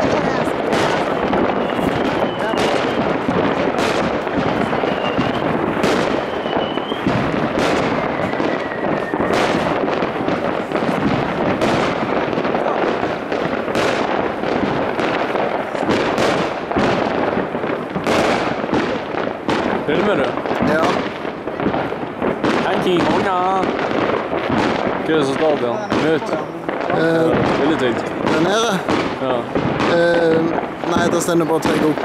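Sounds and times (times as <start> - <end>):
distant fireworks crackle and rumble: 0.0 - 32.0
loud firework bangs: 0.0 - 32.0
whistling rockets: 0.0 - 32.0.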